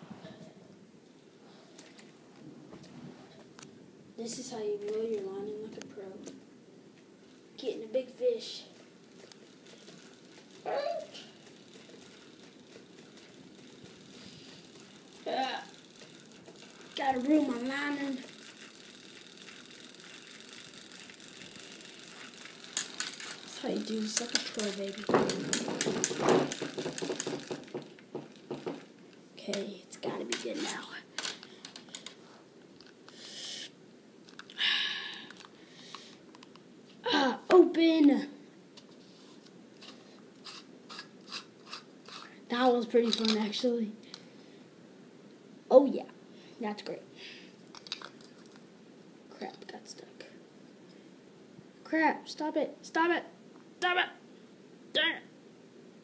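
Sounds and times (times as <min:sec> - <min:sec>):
fishing reel whirring: 0:09.2 - 0:27.8
short hissing sounds: 0:33.1 - 0:33.8.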